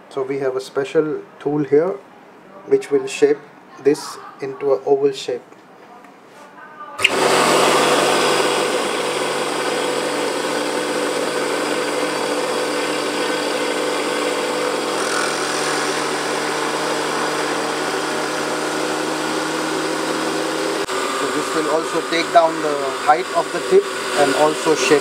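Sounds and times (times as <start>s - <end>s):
lathe motor humming: 7.0s - 25.0s.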